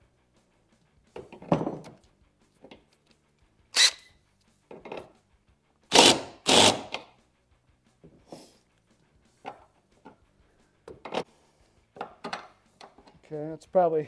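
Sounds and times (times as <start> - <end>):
cordless drill bursts into sheet metal: 3.8 - 4.1, 5.9 - 7.0.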